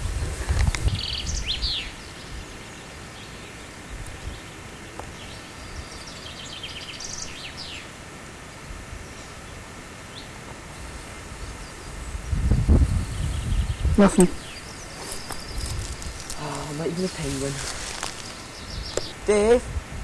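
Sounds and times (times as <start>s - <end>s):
wind rumble on microphone: 0.0s - 2.6s, 3.9s - 6.0s, 11.3s - 17.8s, 18.6s - 20.0s
small birds chirping: 0.0s - 19.6s.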